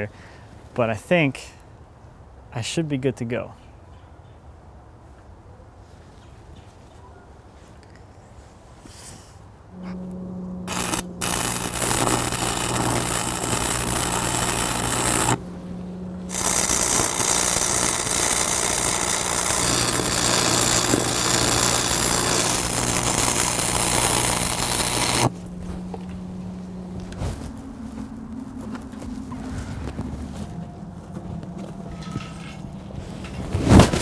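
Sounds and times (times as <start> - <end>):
low hum: 9.5 - 34.0
welding arc crackling: 9.8 - 25.4.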